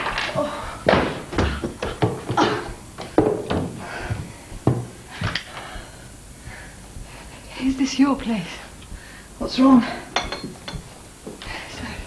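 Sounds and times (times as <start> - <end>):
sharp knocks and thuds: 0.0 - 7.2.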